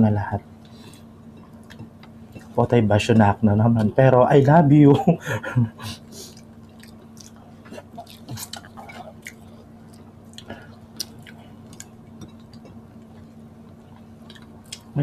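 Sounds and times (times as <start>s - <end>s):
faint steady hum: 0.0s - 15.0s
people chewing with wet smacks: 0.9s - 2.6s, 6.0s - 15.0s.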